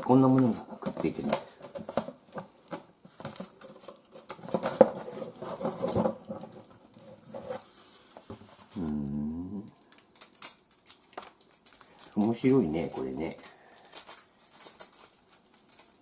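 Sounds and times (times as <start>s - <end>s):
cardboard rustling and scraping: 0.1s - 9.0s.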